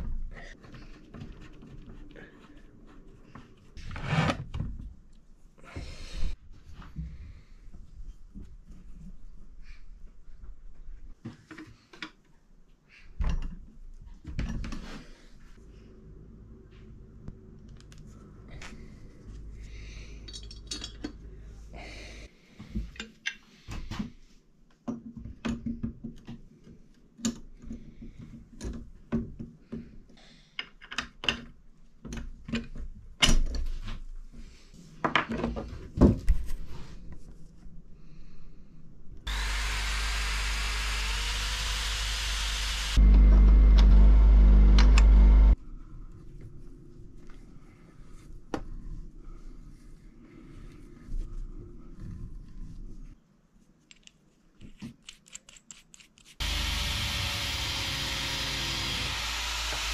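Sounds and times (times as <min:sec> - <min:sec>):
metal tools clinking and knocking: 0:20.3 - 0:21.2.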